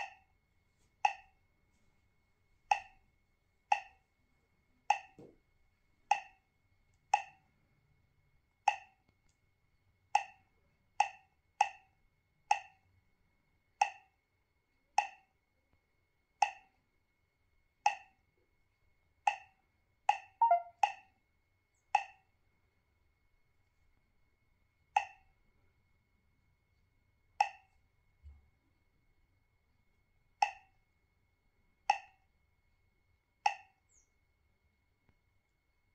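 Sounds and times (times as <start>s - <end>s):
quick run of tones: 20.4s - 20.7s
key-press bloop sound: 20.4s - 20.8s.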